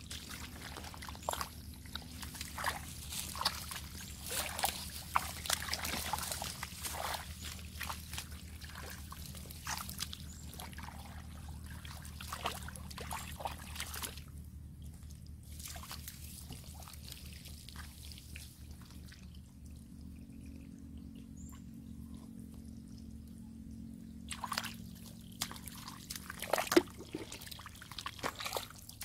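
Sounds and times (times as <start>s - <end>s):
hands splashing in muddy water: 0.0s - 14.3s, 15.5s - 18.9s, 24.3s - 29.0s.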